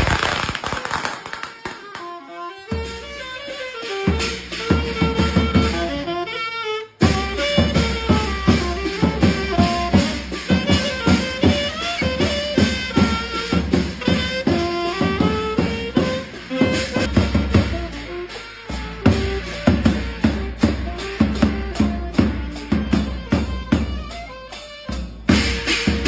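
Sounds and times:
saxophone melody: 0:01.4 - 0:26.0
hand drum beat: 0:07.0 - 0:24.3
clashing cymbals: 0:07.0 - 0:26.0.

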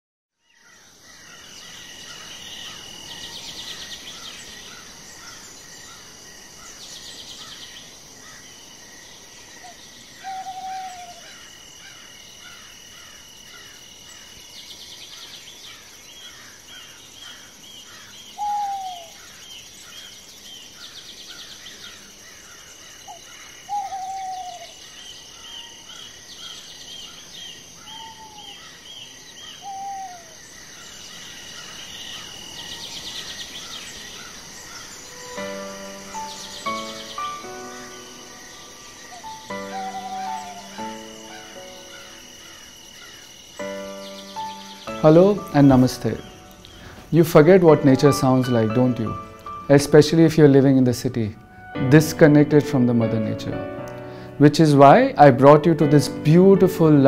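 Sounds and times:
insects trilling: 0:00.4 - 0:57.0
small birds chirping: 0:00.4 - 0:57.0
falling hoot-like calls: 0:09.6 - 0:13.2, 0:18.4 - 0:19.4, 0:23.0 - 0:26.0, 0:27.8 - 0:28.8, 0:29.4 - 0:30.9, 0:31.5 - 0:45.1.

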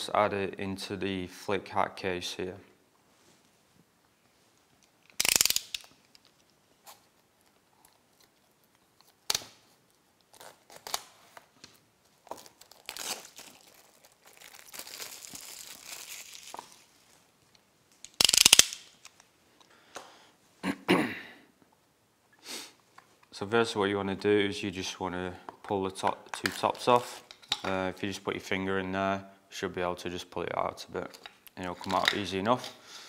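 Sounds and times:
plastic rustling: 0:08.2 - 0:18.2.

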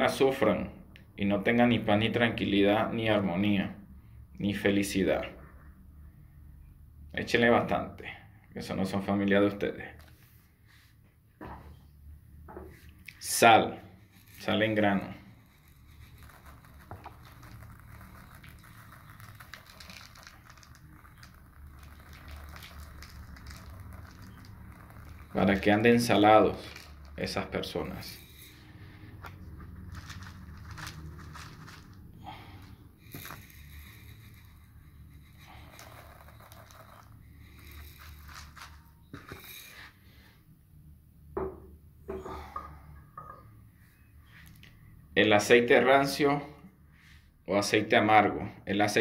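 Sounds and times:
salt grains pattering into tub: 0:14.2 - 0:39.8.

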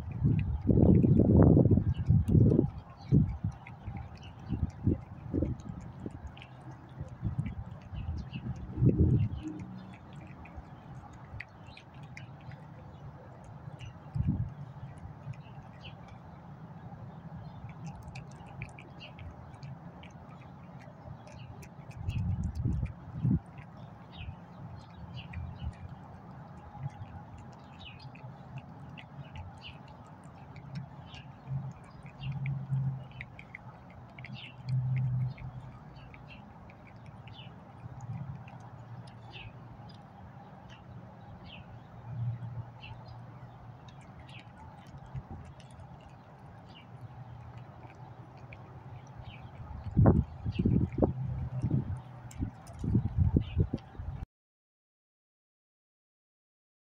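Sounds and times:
birds chirping: 0:00.0 - 0:54.0
cat chewing and lapping: 0:00.0 - 0:54.2
steady low rumble: 0:00.0 - 0:54.2
low rumbling bumps: 0:07.0 - 0:10.6.

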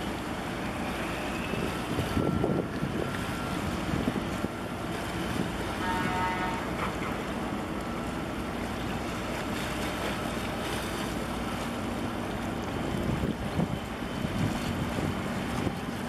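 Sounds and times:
waves washing: 0:00.0 - 0:16.0
wind buffeting microphone: 0:01.6 - 0:05.7, 0:12.8 - 0:16.0.

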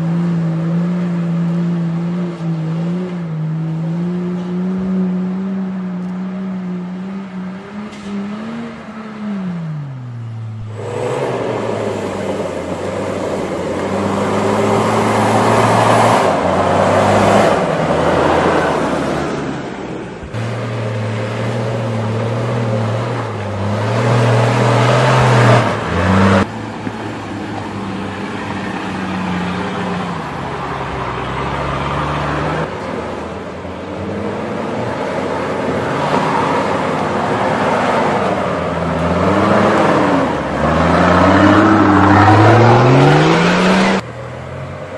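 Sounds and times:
suv engines running under load: 0:00.0 - 0:44.9
rushing noise: 0:07.4 - 0:21.5.

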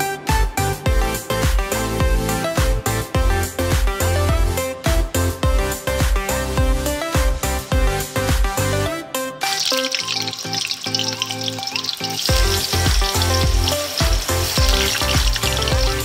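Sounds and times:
background music with steady beat: 0:00.0 - 0:16.0
tofu sizzling in hot oil: 0:09.5 - 0:16.0.

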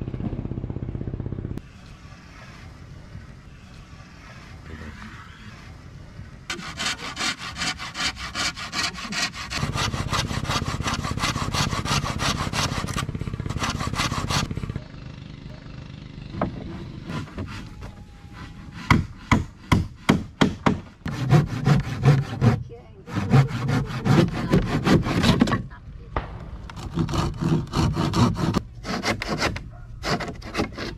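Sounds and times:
handsaw cutting wood: 0:06.5 - 0:14.7, 0:16.4 - 0:20.2, 0:21.0 - 0:25.6, 0:26.8 - 0:30.9.

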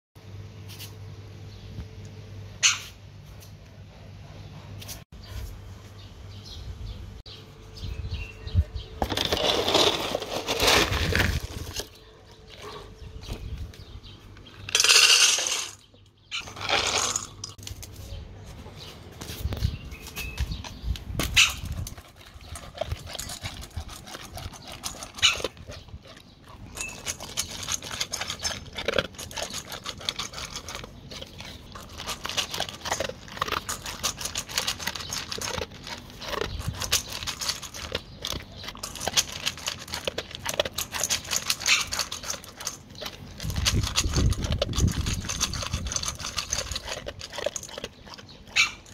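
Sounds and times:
dog eating crunching kibble: 0:08.9 - 0:15.8, 0:16.4 - 0:18.0, 0:20.0 - 0:48.9
kibble clinking in metal bowl: 0:14.6 - 0:15.8, 0:16.4 - 0:17.6, 0:21.8 - 0:48.9
kibble poured into metal bowl: 0:14.7 - 0:15.8, 0:16.5 - 0:17.6.

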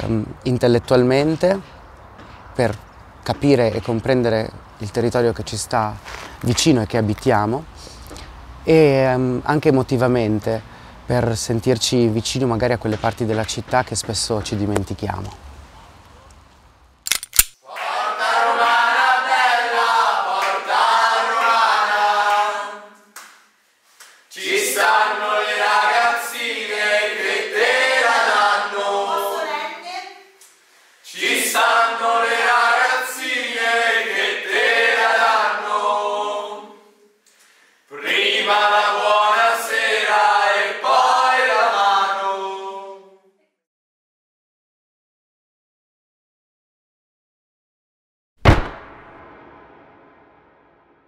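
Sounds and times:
group singing in unison: 0:17.6 - 0:23.2, 0:24.3 - 0:29.8, 0:31.1 - 0:37.1, 0:37.9 - 0:43.3.

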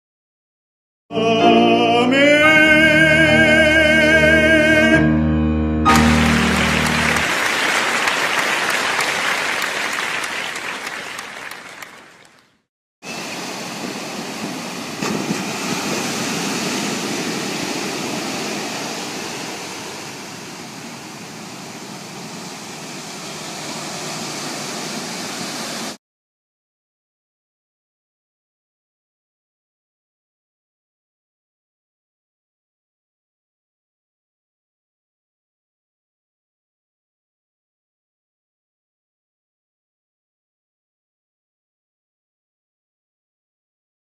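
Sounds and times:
person singing with vibrato: 0:01.1 - 0:06.2
ocean waves breaking: 0:05.9 - 0:12.2, 0:13.0 - 0:26.0.

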